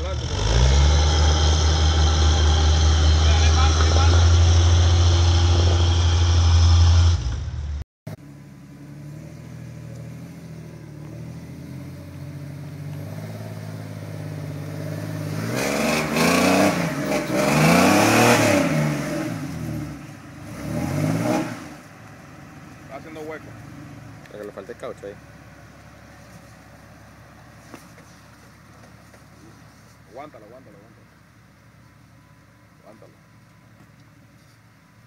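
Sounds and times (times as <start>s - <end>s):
engine revving: 0.0s - 7.8s, 9.0s - 21.9s
loud low rumble: 1.6s - 7.8s.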